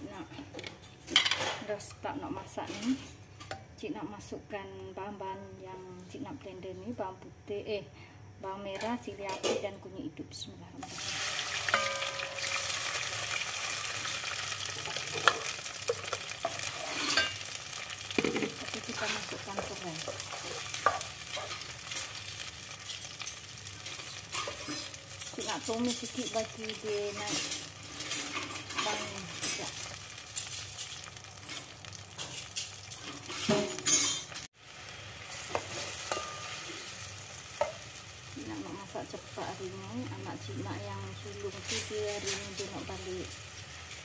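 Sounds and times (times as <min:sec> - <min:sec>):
paste sizzling in hot oil: 0:10.8 - 0:44.0
spatula scraping a pot: 0:16.4 - 0:17.4.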